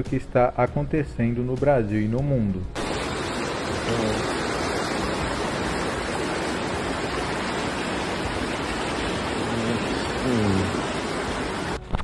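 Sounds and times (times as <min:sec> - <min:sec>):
floodwater rushing: 0:02.8 - 0:12.0.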